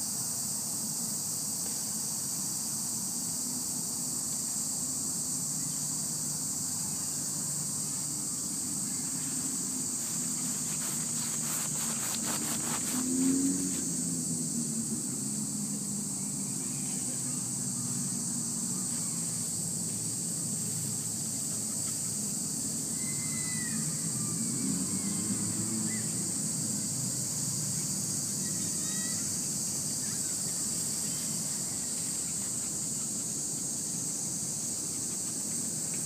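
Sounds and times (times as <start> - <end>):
high-pitched insect chorus: 0.0 - 36.0.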